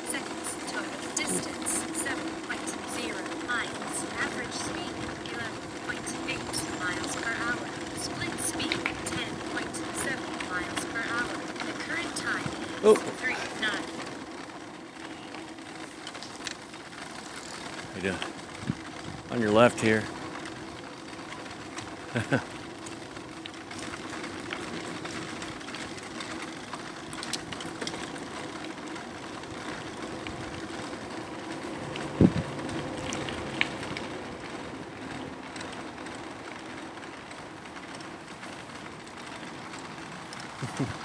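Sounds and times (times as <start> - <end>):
e-bike motor and tyres drone: 0.0 - 41.0
wind noise: 18.6 - 19.4, 32.0 - 33.5.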